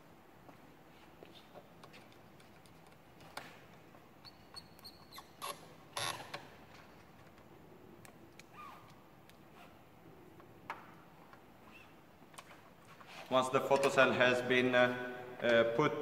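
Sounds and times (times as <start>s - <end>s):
clicks of wires being handled: 1.2s - 4.9s, 6.2s - 9.6s
thin squeak: 4.2s - 5.4s, 11.6s - 12.0s.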